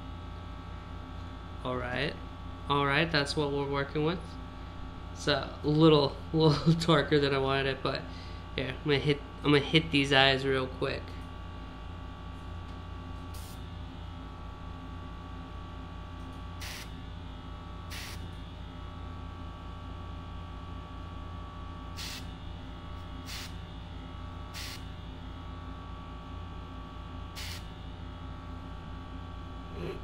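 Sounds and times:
compressor humming: 0.0 - 30.0
airbrush spraying hisses: 16.6 - 16.9, 17.9 - 18.2, 22.0 - 22.3, 23.3 - 23.6, 24.6 - 24.8, 27.4 - 27.6.

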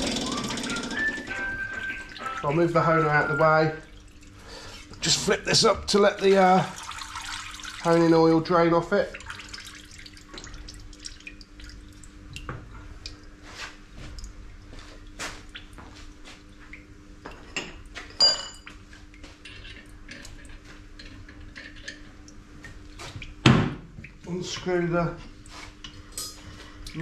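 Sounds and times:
oil dripping: 1.3 - 17.0
ringing metal clink: 18.2 - 18.6.

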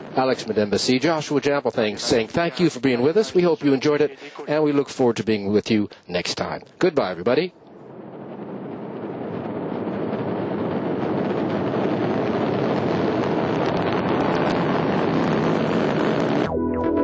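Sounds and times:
rocket engine exhaust roar: 0.0 - 2.7, 7.5 - 17.0.

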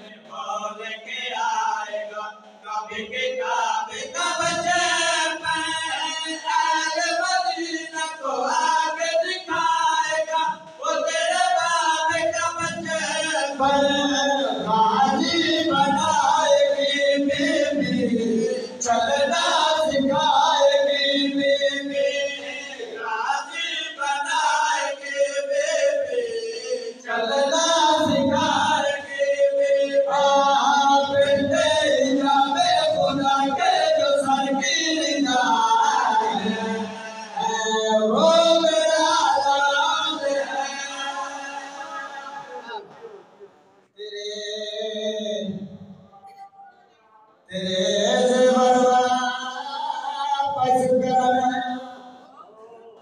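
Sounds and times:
men chanting a lament in unison: 0.0 - 43.3, 47.4 - 53.0.

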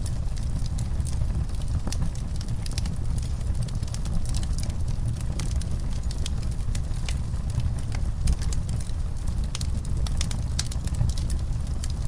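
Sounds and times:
log fire crackling: 0.0 - 12.0.

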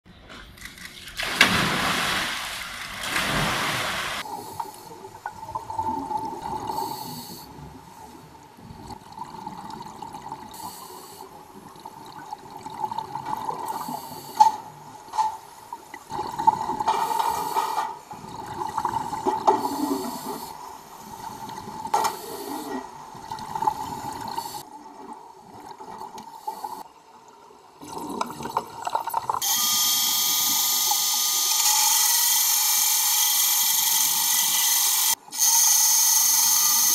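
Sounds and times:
underwater bubbling and gurgling: 3.3 - 31.0
hydraulic saw hissing underwater: 6.6 - 7.6, 10.5 - 11.4, 13.7 - 14.4, 19.2 - 22.9, 24.1 - 24.7, 29.4 - 36.9.

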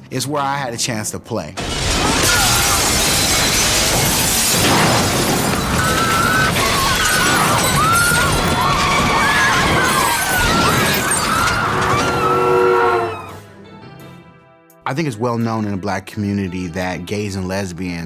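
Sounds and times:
glass shattering: 1.6 - 12.3
debris crashing: 1.6 - 12.6
film music score: 11.2 - 17.2.

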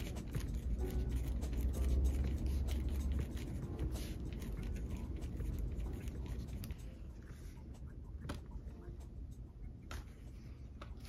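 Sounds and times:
pen scratching on paper: 0.0 - 8.5.

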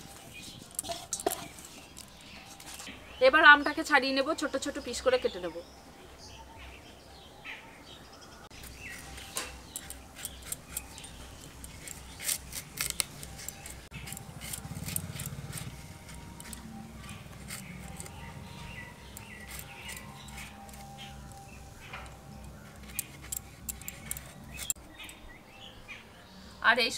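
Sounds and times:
blade scraping mango skin: 8.6 - 24.8.

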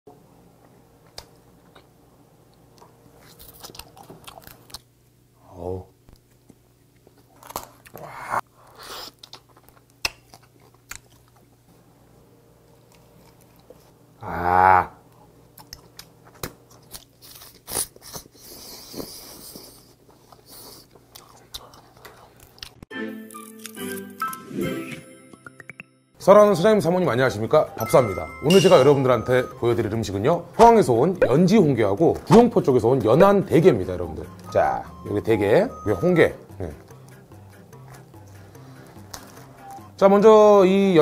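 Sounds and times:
chewing: 3.2 - 4.9, 6.2 - 11.5, 15.1 - 22.8
person making voiced sounds: 14.2 - 15.0.

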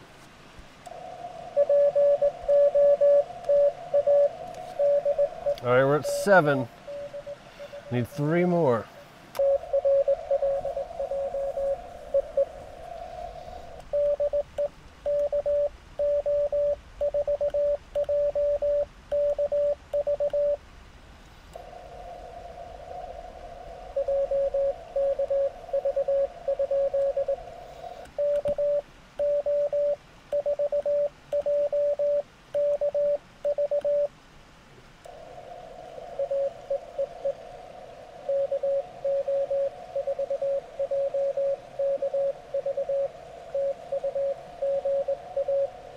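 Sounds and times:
receiver hiss: 0.0 - 45.9
morse code tones: 1.6 - 8.8, 9.4 - 12.6, 13.9 - 20.6, 24.0 - 27.4, 28.2 - 34.1, 36.2 - 37.4, 38.2 - 45.8.

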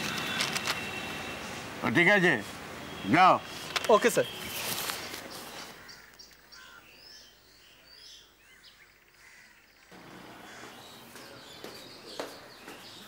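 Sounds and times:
steady outdoor ambience: 0.0 - 13.0
faint birds chirping: 2.7 - 13.0.

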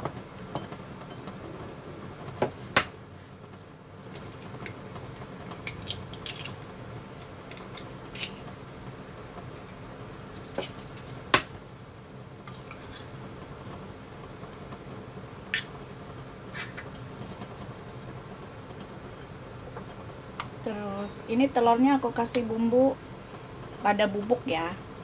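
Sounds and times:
eggs cracking clicks: 4.2 - 6.6, 7.2 - 8.4.

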